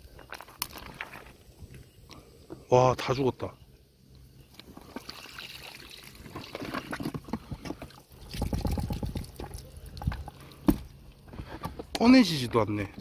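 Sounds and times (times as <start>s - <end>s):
water trickling: 4.6s - 7.1s, 7.8s - 11.2s.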